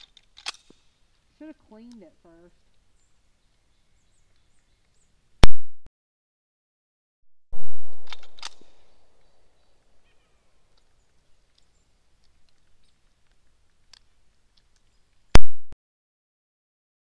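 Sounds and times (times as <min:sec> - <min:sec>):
sharp clicks: 0:07.6 - 0:08.8.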